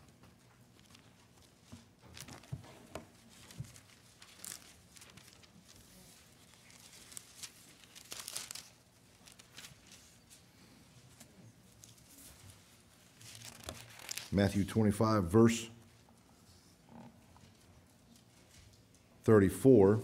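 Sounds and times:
thin pages rustling: 0.3s - 14.4s.

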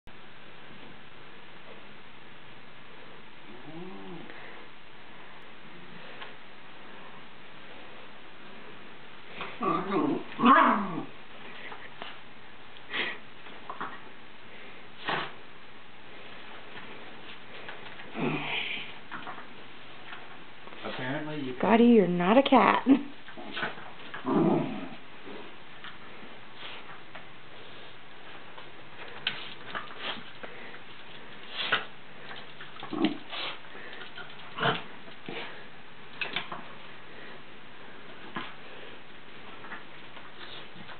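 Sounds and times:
dog sniffing: 29.2s - 35.6s.

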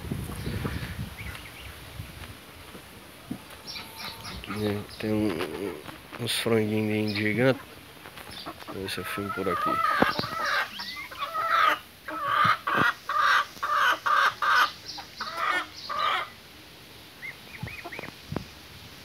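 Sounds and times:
chickens clucking: 2.7s - 16.5s, 17.2s - 18.5s.

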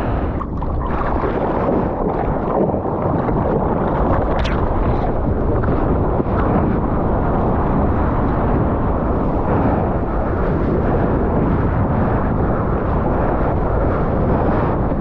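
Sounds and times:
surf whitewater rushing: 0.0s - 6.7s.

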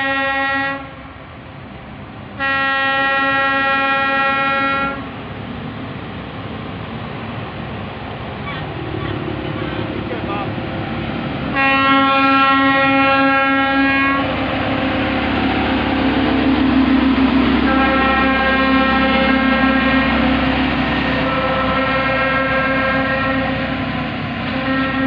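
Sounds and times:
rail machine horn blasts: 0.0s - 1.2s, 2.4s - 5.1s, 11.5s - 25.0s.

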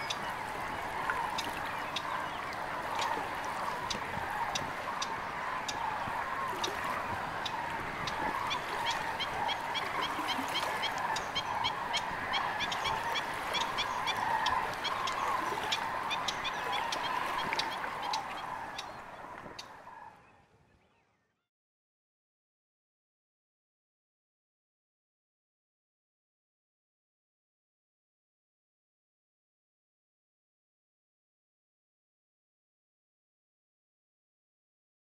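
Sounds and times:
flock of waterbirds honking: 0.0s - 20.2s.

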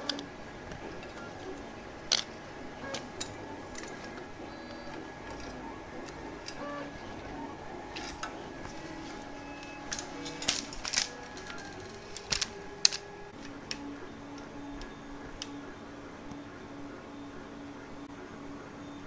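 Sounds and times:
clicks and taps of connectors: 7.9s - 15.6s.

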